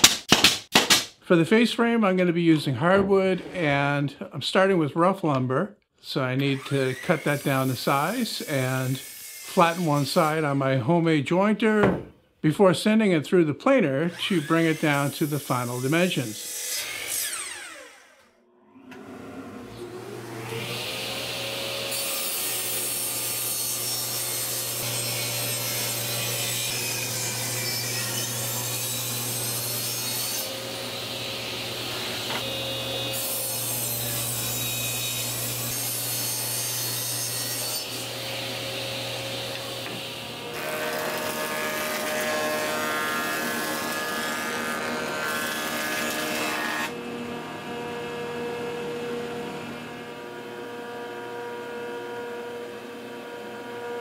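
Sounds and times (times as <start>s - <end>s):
table saw ripping boards: 14.1s - 47.7s
jointer planing board: 18.9s - 54.0s.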